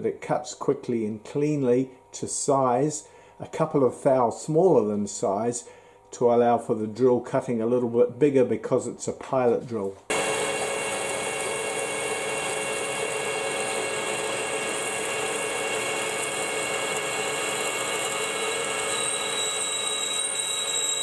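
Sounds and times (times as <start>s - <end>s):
lathe drive hum and whine: 0.5s - 21.0s
drill cutting hiss: 10.1s - 21.0s.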